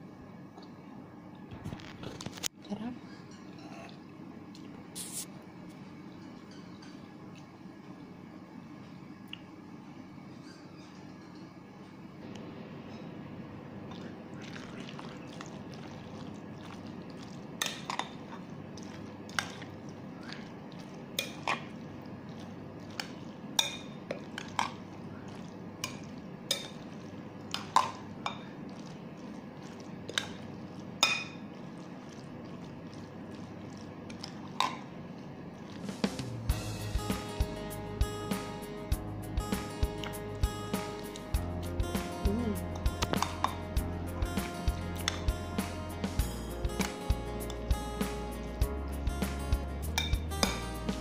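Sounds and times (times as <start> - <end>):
spoon stirring wet salad: 13.9 - 36.1, 42.6 - 45.8, 46.8 - 48.6, 49.8 - 50.7
spoon clinking against glass: 49.9 - 50.6.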